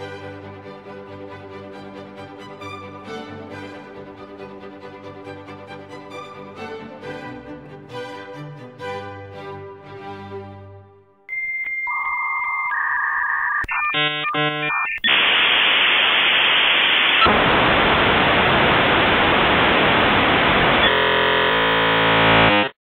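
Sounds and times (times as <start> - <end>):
quick buzzy blips: 11.3 - 15.2
electronic beeping tones: 11.3 - 15.3
harsh buzzing tone: 12.8 - 22.8
loud static hiss: 14.0 - 22.7.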